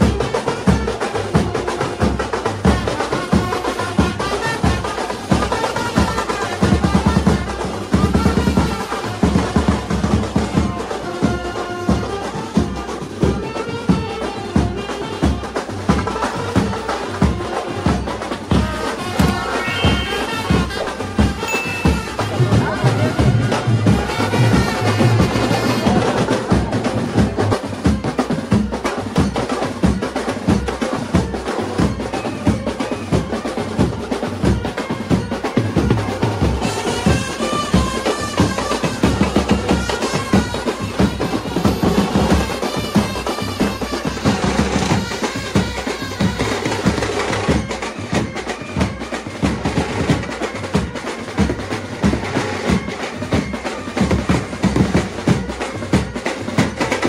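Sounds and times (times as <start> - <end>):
brass band playing: 0.0 - 57.0
snare and bass drums beating: 0.0 - 57.0
trumpets playing a wavering tune: 18.7 - 26.2.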